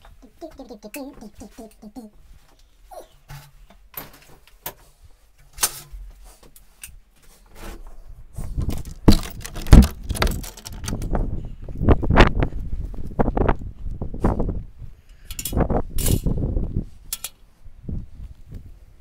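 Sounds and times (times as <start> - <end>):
camera handling clicks and rattles: 8.6 - 11.2.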